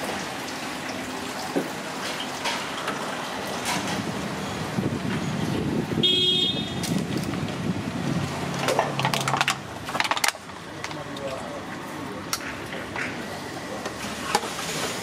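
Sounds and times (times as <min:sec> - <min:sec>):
street din: 0:01.4 - 0:15.0
vehicle horn toot: 0:06.0 - 0:06.9
plastic bottles crinkling: 0:08.6 - 0:11.0.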